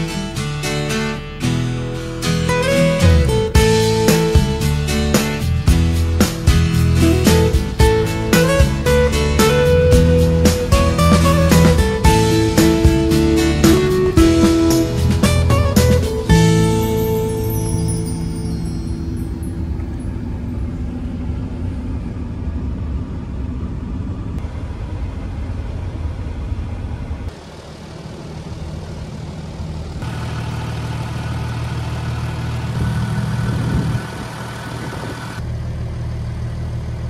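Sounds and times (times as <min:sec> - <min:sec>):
car engine idling: 0:00.0 - 0:37.0
faint whine: 0:17.5 - 0:30.2.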